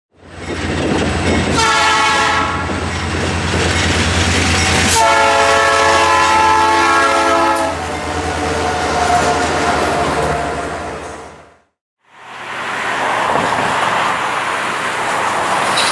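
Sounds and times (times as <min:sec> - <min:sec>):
locomotive air horn: 0:01.5 - 0:02.7, 0:04.9 - 0:10.0.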